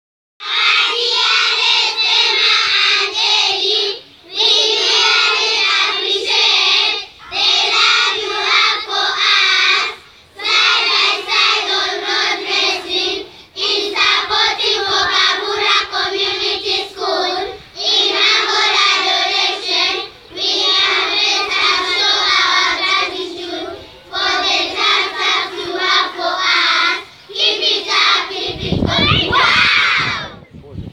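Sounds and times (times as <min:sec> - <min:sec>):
children singing in unison: 0:00.4 - 0:30.4.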